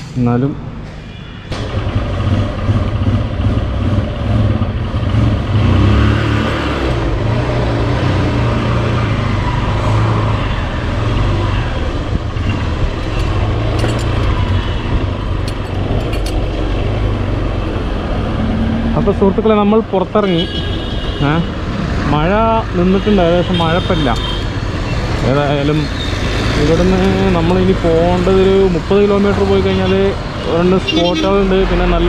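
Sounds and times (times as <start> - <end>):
motorcycle engine running: 1.6 - 5.6.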